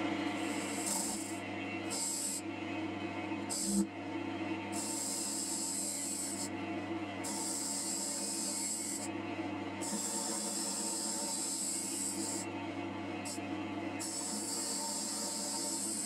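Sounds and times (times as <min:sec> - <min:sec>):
wood lathe humming: 0:00.0 - 0:02.4, 0:07.2 - 0:09.1, 0:09.8 - 0:12.4, 0:14.0 - 0:16.0.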